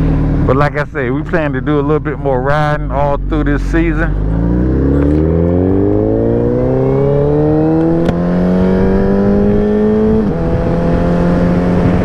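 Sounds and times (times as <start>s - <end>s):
motorcycle engine accelerating: 0.0s - 12.0s
wind rush over microphone: 6.9s - 12.0s.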